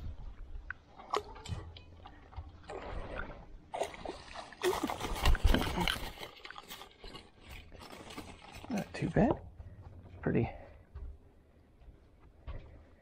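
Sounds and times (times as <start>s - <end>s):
fish splashing in water: 3.7s - 6.6s.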